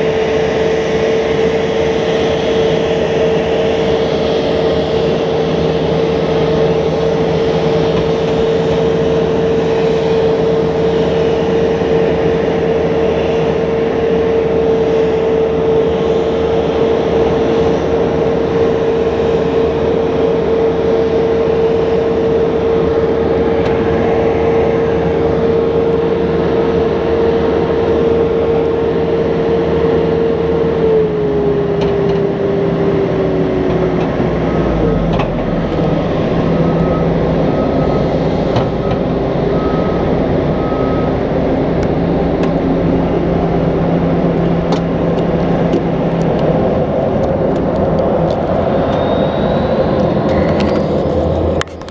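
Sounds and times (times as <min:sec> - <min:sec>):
steady whine: 0:00.0 - 0:51.9
tug engine running: 0:00.0 - 0:51.9.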